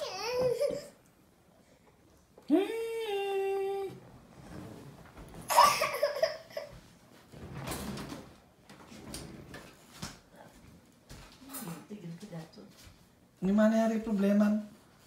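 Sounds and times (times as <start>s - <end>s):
toddler breathy laugh: 5.5s - 6.8s.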